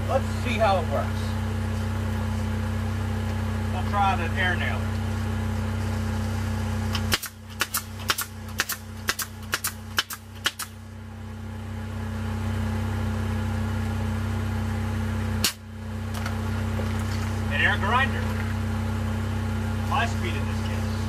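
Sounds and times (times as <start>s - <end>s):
car engine idling: 0.0s - 21.0s
air nailer firing into wood: 6.9s - 10.8s, 15.4s - 15.6s.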